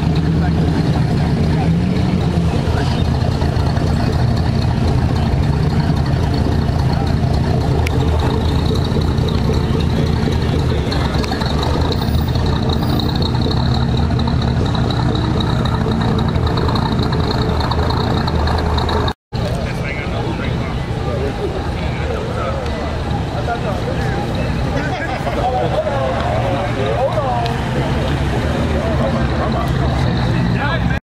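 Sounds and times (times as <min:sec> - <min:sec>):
car engine running low: 0:00.0 - 0:31.0.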